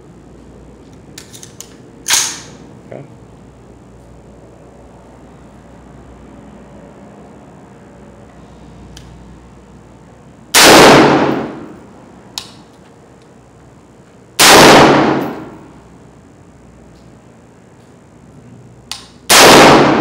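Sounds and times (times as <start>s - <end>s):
rifle shots: 10.5s - 11.7s, 14.4s - 15.6s, 19.3s - 20.0s.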